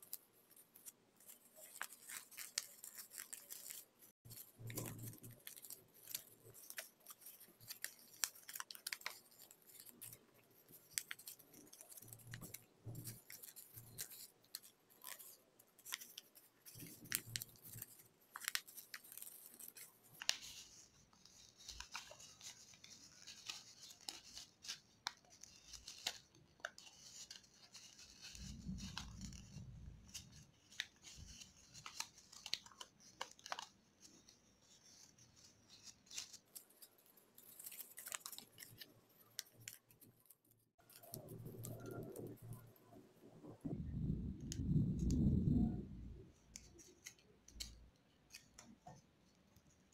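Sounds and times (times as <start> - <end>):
paper folding and crackling: 0.0 - 43.6, 44.4 - 49.9
low rumble: 43.5 - 46.3.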